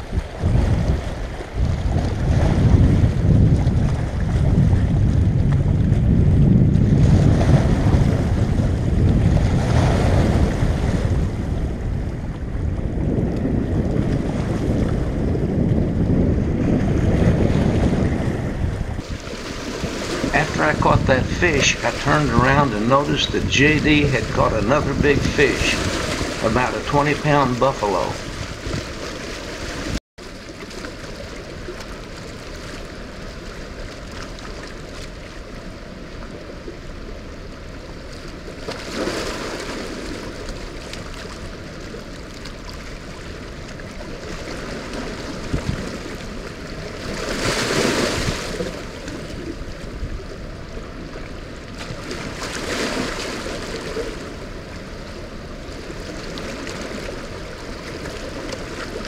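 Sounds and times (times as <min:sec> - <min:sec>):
water rushing past rocks: 0:17.5 - 0:50.0.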